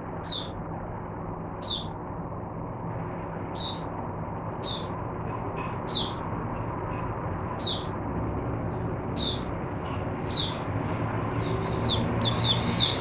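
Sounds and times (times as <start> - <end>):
steady low hum: 0.0 - 13.0
bird giving high chirps: 0.2 - 0.6, 1.6 - 1.9, 3.5 - 3.9, 4.6 - 5.0, 5.8 - 6.2, 7.5 - 8.0, 9.2 - 10.7, 11.4 - 13.0.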